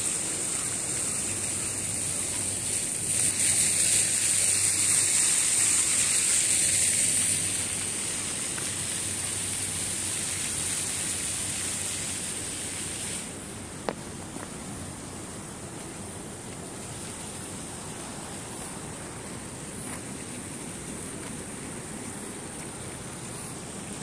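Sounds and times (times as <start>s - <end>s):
fountain water splashing: 0.0s - 24.0s.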